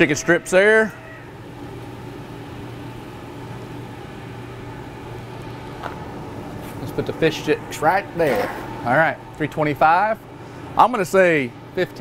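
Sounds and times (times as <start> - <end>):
smoker mechanical hum: 0.0 - 12.0.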